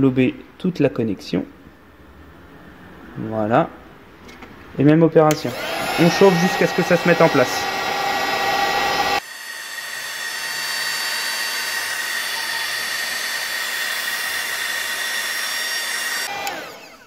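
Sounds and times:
heat gun blowing air: 5.3 - 17.0.

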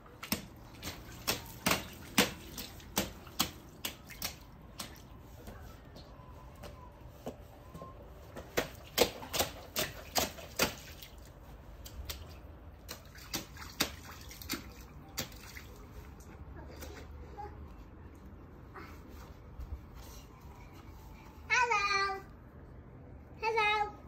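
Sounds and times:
rubber boots splashing in puddle: 0.2 - 5.0, 8.6 - 15.7.

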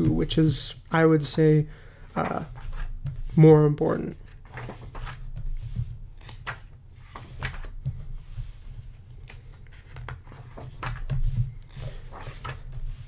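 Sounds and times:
pages being turned: 2.2 - 3.5, 4.1 - 13.0.

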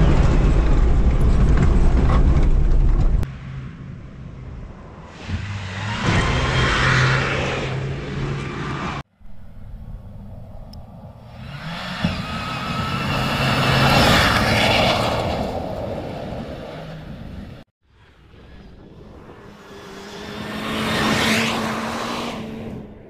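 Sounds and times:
rally car engine revving: 19.3 - 23.0.

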